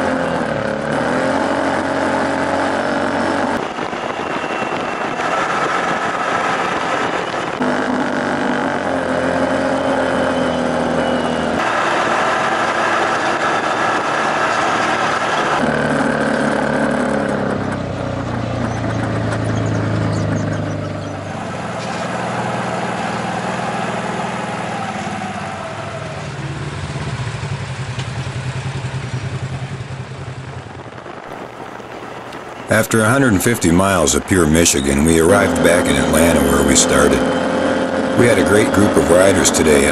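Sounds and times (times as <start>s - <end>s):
off-road vehicle engine: 0.0s - 39.9s
tyre and wind rushing: 0.6s - 15.7s, 30.0s - 38.8s.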